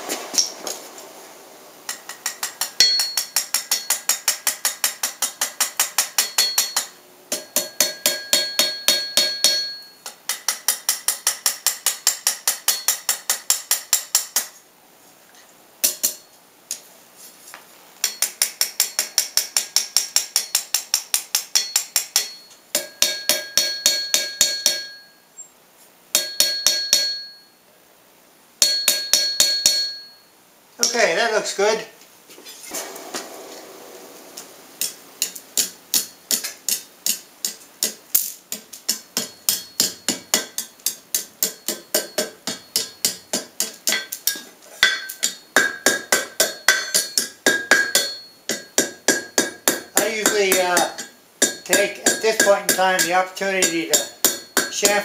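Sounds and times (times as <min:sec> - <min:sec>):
hammer striking anvil: 0:02.0 - 0:14.5, 0:18.0 - 0:25.1, 0:26.2 - 0:27.5, 0:28.6 - 0:30.2, 0:34.8 - 0:55.0
anvil ringing: 0:02.4 - 0:04.1, 0:06.2 - 0:10.0, 0:21.6 - 0:25.2, 0:26.2 - 0:27.6, 0:28.6 - 0:30.3, 0:39.2 - 0:55.0.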